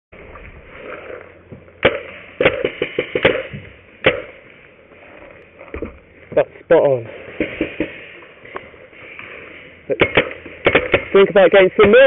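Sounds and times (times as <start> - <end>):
steady background hiss: 0.2 - 12.0
paintball markers firing: 1.8 - 4.4, 9.9 - 12.0.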